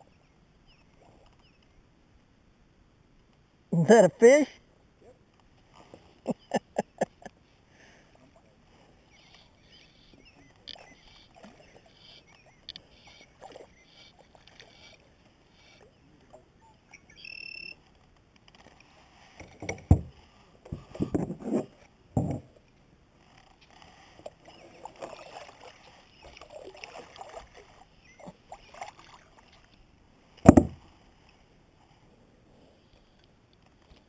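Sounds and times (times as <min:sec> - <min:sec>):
knocks against kayak hull: 0:19.6 - 0:20.1, 0:30.4 - 0:30.8.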